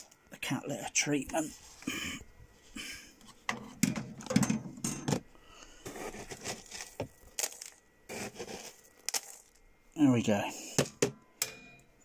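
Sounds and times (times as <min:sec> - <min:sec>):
litter scoop scraping: 0:05.8 - 0:09.5
litter granules pattering on plastic: 0:05.9 - 0:09.6.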